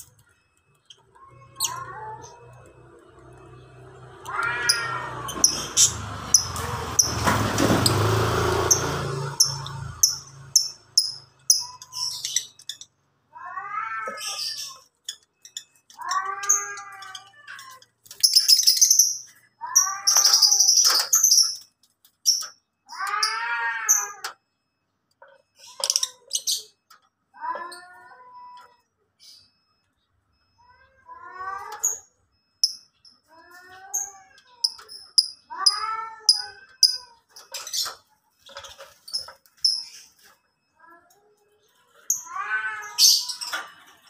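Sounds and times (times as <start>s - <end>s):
lovebirds chirping and screeching: 0.0s - 13.0s, 13.6s - 24.3s, 31.3s - 40.4s, 41.6s - 44.0s
meow-like calls: 1.1s - 6.5s, 13.3s - 14.9s, 15.9s - 17.9s, 19.4s - 20.6s, 22.9s - 24.4s, 27.4s - 29.4s, 30.6s - 32.0s, 33.2s - 38.0s, 42.0s - 43.9s.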